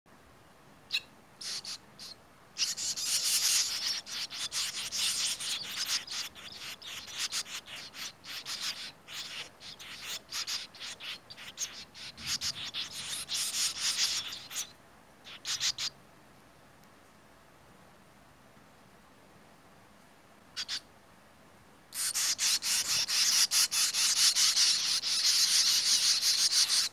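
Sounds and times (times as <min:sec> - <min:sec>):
nestlings chattering: 0:00.9 - 0:15.9, 0:20.6 - 0:20.8, 0:21.9 - 0:26.9.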